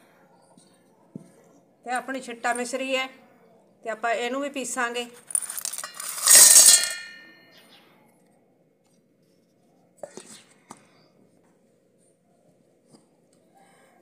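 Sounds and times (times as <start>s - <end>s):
sugar chunks rattling into steel jar: 5.2s - 7.0s
steel jar ringing: 5.3s - 7.5s.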